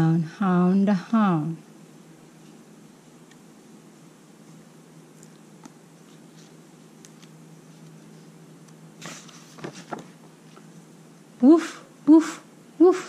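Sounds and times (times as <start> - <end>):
faint low hum: 0.0 - 13.0
book page turning: 5.1 - 8.0, 8.6 - 10.7.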